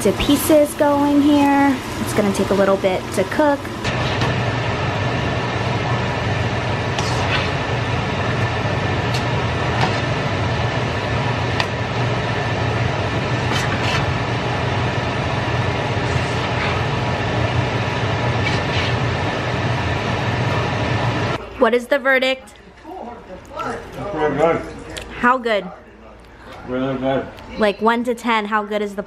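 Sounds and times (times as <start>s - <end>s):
wok stir-frying rushing noise: 0.0s - 21.4s.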